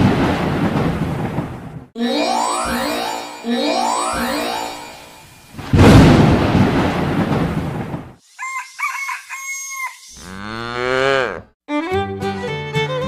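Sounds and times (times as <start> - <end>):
loud rumbling burst: 5.6 - 8.2
rooster crowing: 8.4 - 10.4.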